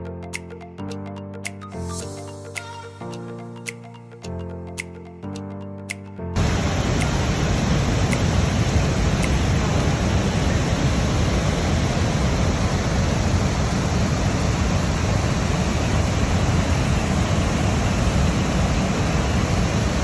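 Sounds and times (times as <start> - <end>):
waterfall rushing: 6.4 - 20.0.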